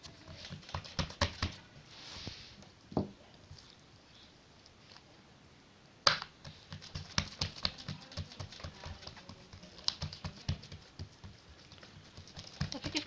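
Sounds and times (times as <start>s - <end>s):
hands slapping dough: 0.0s - 1.6s, 6.0s - 13.0s.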